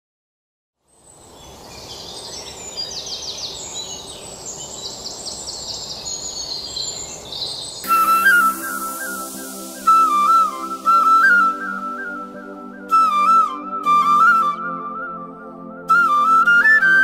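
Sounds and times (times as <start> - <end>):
birds chirping: 1.0 - 10.3.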